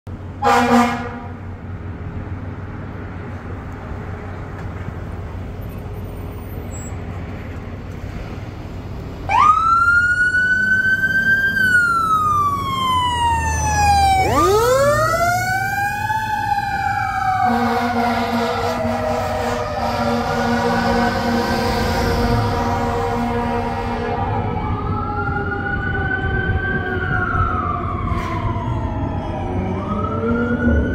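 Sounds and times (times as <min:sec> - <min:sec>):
air horn blast: 0:00.4 - 0:01.4, 0:17.4 - 0:24.3
fire engine siren wailing: 0:00.4 - 0:01.4, 0:09.2 - 0:30.9.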